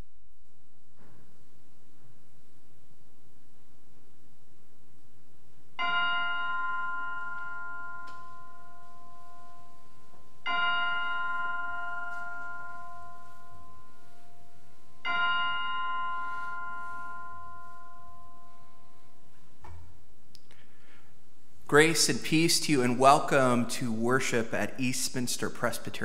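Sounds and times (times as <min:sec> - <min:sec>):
chimes ringing: 0:05.8 - 0:19.4.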